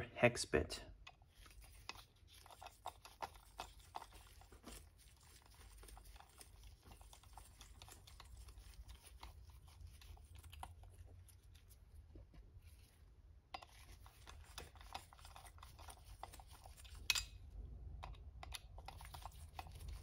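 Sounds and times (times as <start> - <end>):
screwdriver clicking and scraping: 1.0 - 11.0, 13.6 - 17.4, 18.0 - 20.0.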